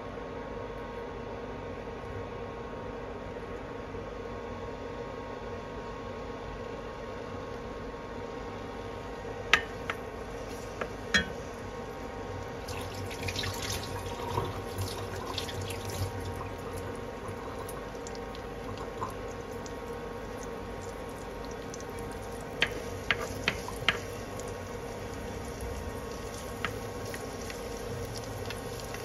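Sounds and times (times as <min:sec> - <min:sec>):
steady hum: 0:01.5 - 0:29.0
spatula knocking against pan: 0:09.6 - 0:10.0, 0:11.2 - 0:11.4, 0:22.6 - 0:24.1
garlic sizzling in oil: 0:09.6 - 0:29.0.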